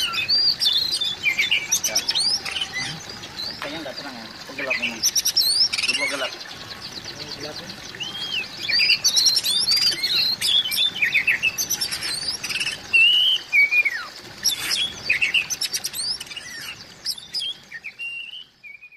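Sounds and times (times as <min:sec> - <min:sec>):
bird singing whistles and chatter: 0:00.0 - 0:18.9.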